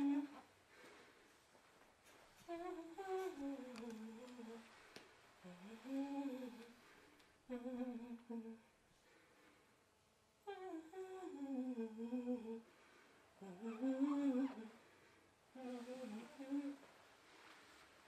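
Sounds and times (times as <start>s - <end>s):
woman humming a melody: 0.0s - 0.5s, 2.4s - 4.7s, 5.4s - 6.8s, 7.5s - 8.7s, 10.4s - 12.7s, 13.4s - 14.8s, 15.5s - 16.9s.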